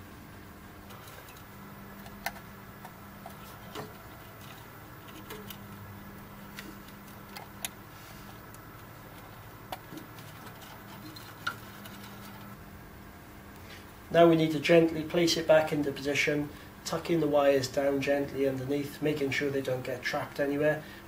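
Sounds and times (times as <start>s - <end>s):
faint steady hum: 0.0s - 21.0s
handling of wire leads: 0.8s - 12.6s.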